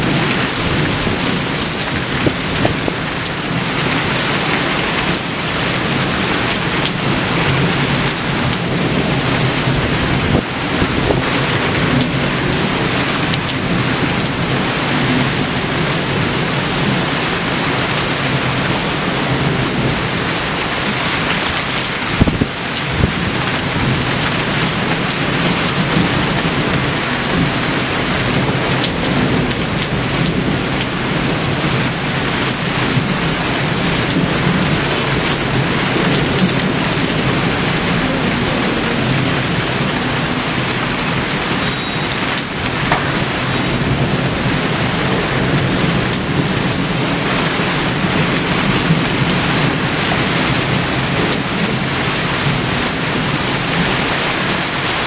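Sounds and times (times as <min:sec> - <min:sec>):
steady rain falling: 0:00.0 - 0:55.0
raindrops ticking: 0:00.1 - 0:10.5, 0:28.3 - 0:54.8.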